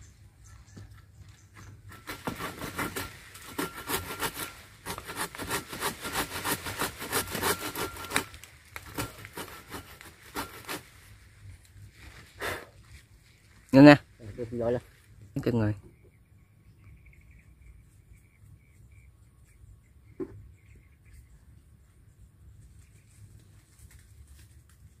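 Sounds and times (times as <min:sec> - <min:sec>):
hand saw cutting wood: 0:01.9 - 0:10.9.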